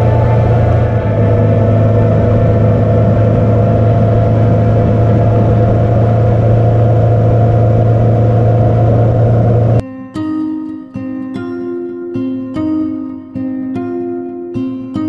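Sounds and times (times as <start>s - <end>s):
motorcycle engine cruising: 0.0s - 9.8s
wind noise: 0.0s - 9.8s.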